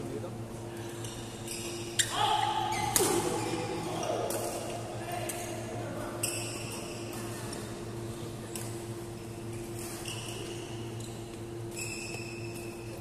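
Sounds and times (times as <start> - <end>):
steady low hum: 0.0 - 13.0
racket hitting shuttlecock: 2.9 - 3.4.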